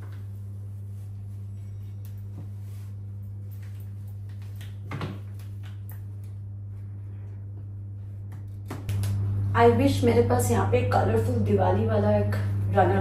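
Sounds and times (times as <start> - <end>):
cloth rustling: 0.0 - 4.6
steady low hum: 0.0 - 13.0.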